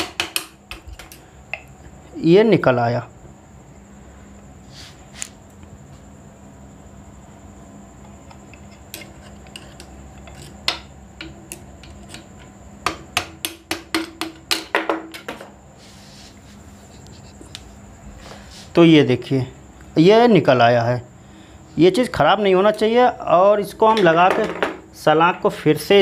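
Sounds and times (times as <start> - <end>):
hammer tapping metal rod: 10.6 - 15.4.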